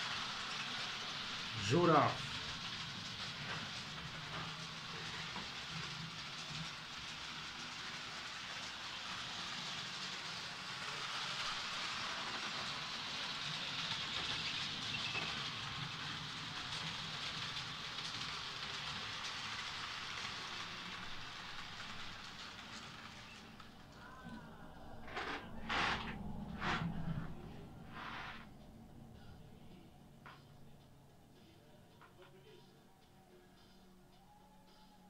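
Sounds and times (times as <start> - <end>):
model train motor whirring: 0.0 - 23.9
wheels rolling on rails: 0.0 - 30.8.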